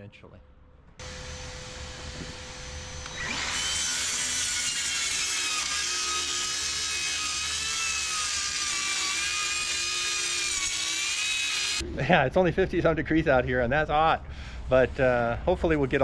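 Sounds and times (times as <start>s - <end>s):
power tool whining: 1.0s - 11.8s.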